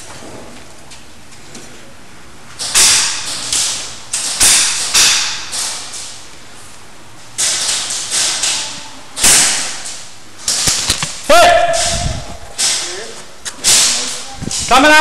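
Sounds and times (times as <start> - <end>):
airsoft gun shots: 2.6 - 5.9, 9.2 - 9.9.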